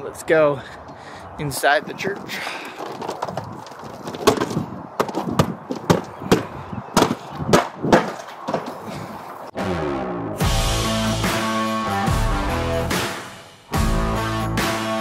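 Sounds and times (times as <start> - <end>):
footsteps on pavement: 1.9 - 9.0
intro music: 9.6 - 15.0.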